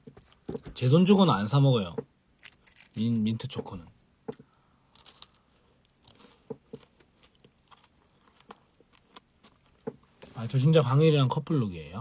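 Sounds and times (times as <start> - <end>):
faint bites and chewing: 2.4 - 3.0, 4.4 - 10.1.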